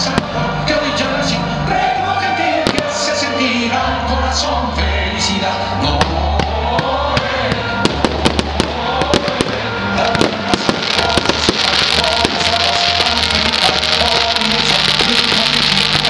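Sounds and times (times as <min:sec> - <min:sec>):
fireworks banging and cracking: 0:00.0 - 0:00.4, 0:02.6 - 0:03.0, 0:06.0 - 0:16.0
music playing: 0:00.0 - 0:16.0
fireworks hissing crackle: 0:07.8 - 0:16.0.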